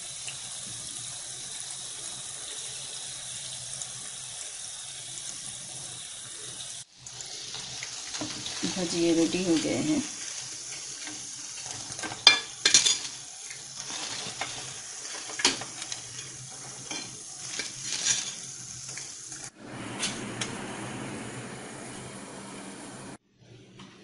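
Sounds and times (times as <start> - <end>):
food sizzling in hot oil: 0.0 - 23.2
metal spatula clinking and scraping: 10.7 - 19.0.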